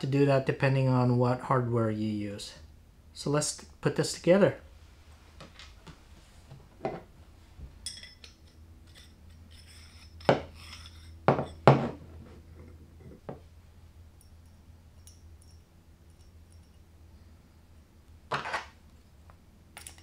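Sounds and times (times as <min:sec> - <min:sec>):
metal rod clinking with ring: 0:07.8 - 0:11.6, 0:14.1 - 0:16.9.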